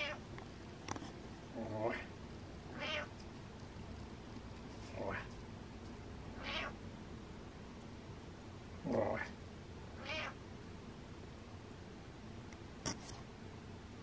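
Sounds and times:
cat meowing: 0:00.0 - 0:00.2, 0:02.7 - 0:03.1, 0:06.4 - 0:06.8, 0:10.0 - 0:10.4.

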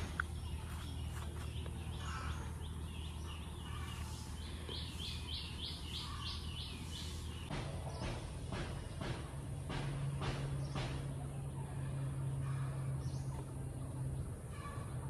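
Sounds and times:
bird chirping: 0:00.0 - 0:15.0
low outdoor hum: 0:00.0 - 0:15.0.

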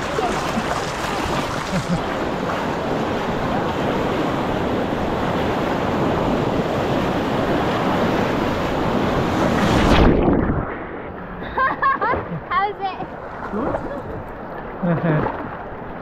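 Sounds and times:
river whitewater rushing: 0:00.0 - 0:05.1.

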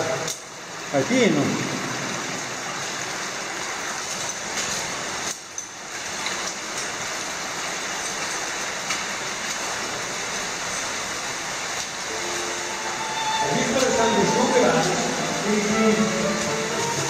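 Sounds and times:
cave stream rushing: 0:00.0 - 0:17.0.

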